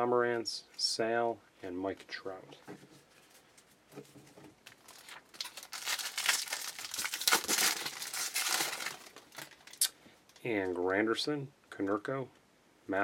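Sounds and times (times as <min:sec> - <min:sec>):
foil wrapper tearing and crinkling: 0:04.6 - 0:09.9.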